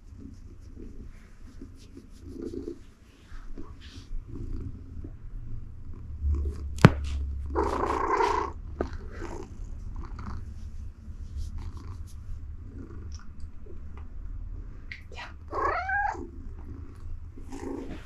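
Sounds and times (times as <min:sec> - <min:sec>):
rustling: 0:00.0 - 0:04.2, 0:06.6 - 0:12.4
cat purring: 0:00.0 - 0:18.0.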